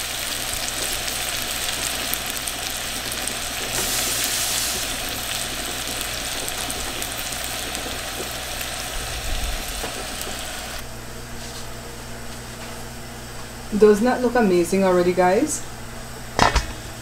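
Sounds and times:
stew sizzling in a pan: 0.0s - 10.8s.

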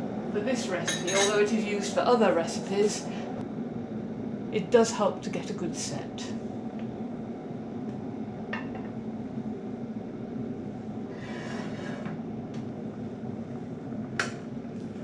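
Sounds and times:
short scrape: 11.1s - 12.1s.

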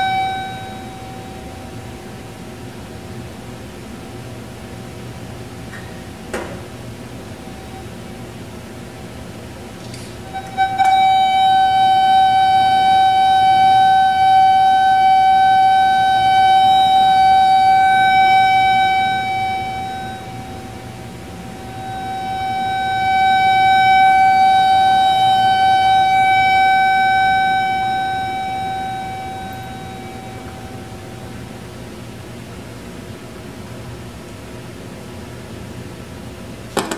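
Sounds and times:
steady mid-pitched tone: 10.4s - 31.9s.

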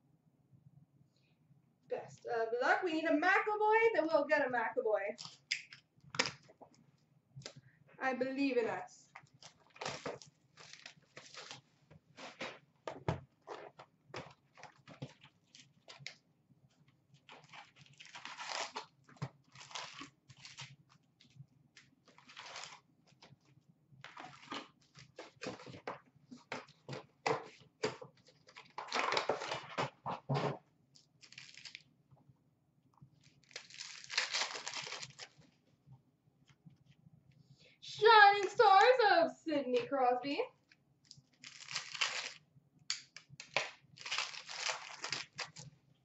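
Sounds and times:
wrapper crinkling: 9.1s - 11.6s, 17.2s - 20.8s, 22.1s - 22.8s, 31.0s - 31.8s, 33.2s - 35.4s, 41.0s - 42.4s, 43.2s - 45.7s
cardboard and paper scrapes: 10.7s - 12.6s.

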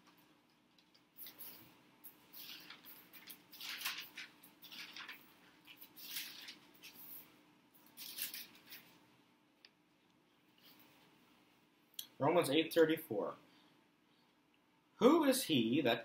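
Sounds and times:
paper pages turning: 0.0s - 9.1s.

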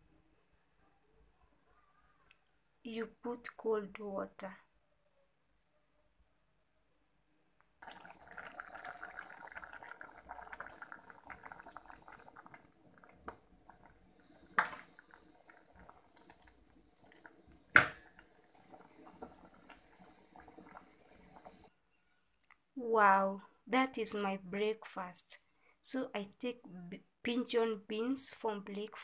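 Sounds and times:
water pouring into metal pot: 7.8s - 21.7s.

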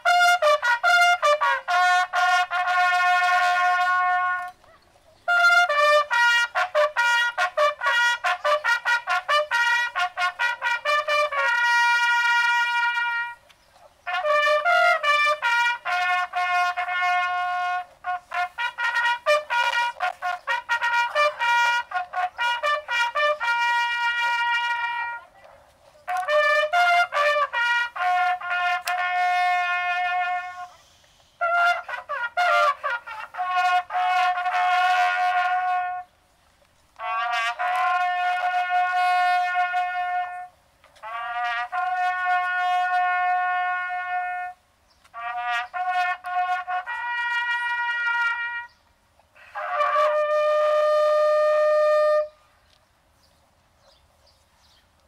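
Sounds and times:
solo brass call: 0.0s - 36.2s, 37.0s - 52.5s.

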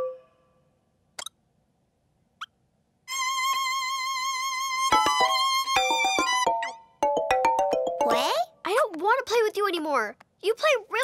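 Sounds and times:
toy xylophone notes: 4.9s - 8.4s.

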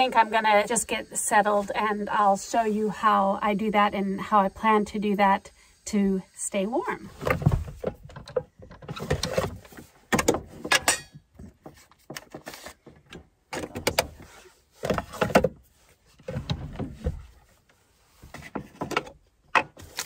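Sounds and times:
objects knocking and clattering: 7.2s - 14.1s.

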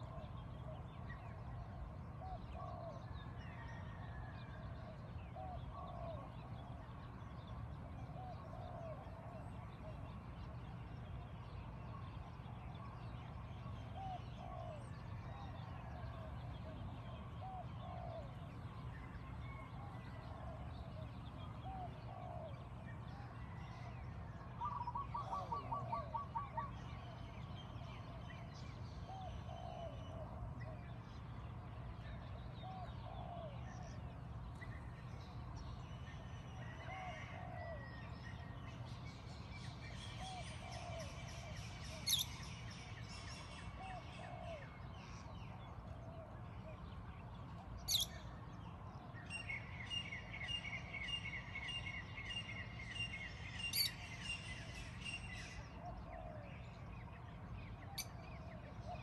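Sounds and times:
steady low background hum: 0.0s - 59.0s
birds calling: 40.1s - 45.2s, 47.8s - 48.2s.

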